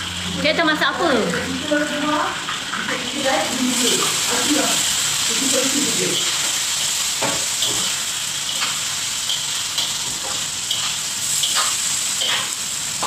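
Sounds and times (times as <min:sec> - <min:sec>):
chicken frying in hot oil: 0:00.0 - 0:13.0
spatula scraping and knocking wok: 0:03.8 - 0:13.0.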